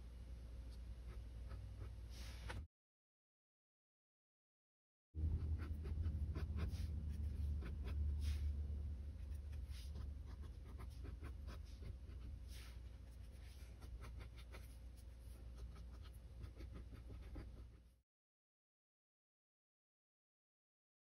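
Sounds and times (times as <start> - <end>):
faint low hum: 5.2 - 18.0.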